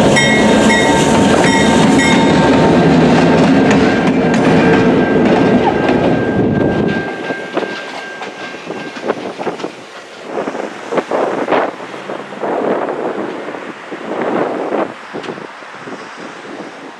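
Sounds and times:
diesel locomotive rumbling: 0.0 - 16.9
electronic crossing bell ringing: 0.1 - 2.5, 4.7 - 9.0.

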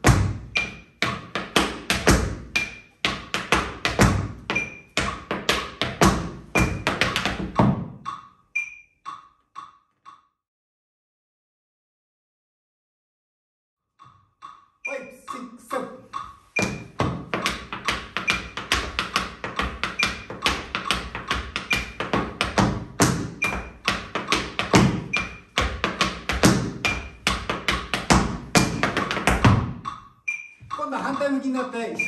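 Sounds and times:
tap shoes on wooden floor: 0.0 - 8.1, 16.1 - 30.0
accented metronome beep: 0.4 - 1.0, 4.4 - 5.3, 7.6 - 10.3, 14.0 - 22.6, 23.2 - 32.0
metronome clicking: 8.0 - 10.3, 14.0 - 16.9, 29.8 - 32.0.

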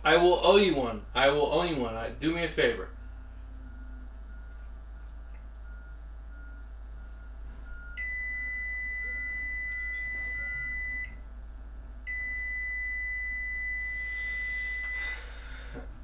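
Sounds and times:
microwave oven humming: 0.0 - 16.0
faint short repeating tone: 3.0 - 11.2
loud high-pitched electronic beep: 8.0 - 11.1.

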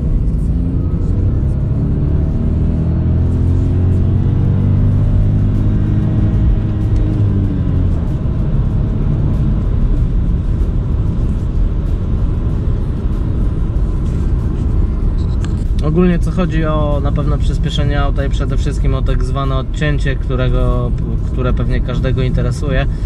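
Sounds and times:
car engine accelerating: 0.0 - 23.0
road noise: 0.0 - 23.0.

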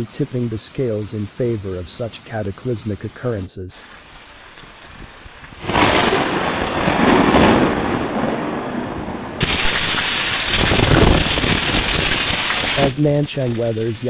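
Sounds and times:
heavy rain: 0.0 - 14.0
wind gusts buffeting microphone: 4.9 - 14.0.

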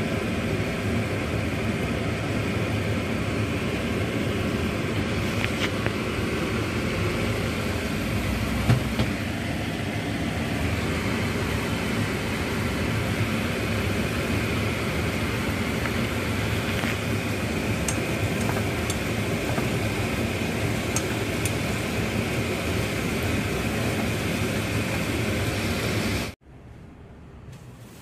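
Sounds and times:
food stir-frying in a wok: 0.0 - 26.4
chopsticks clicking against pan: 20.9 - 21.6.

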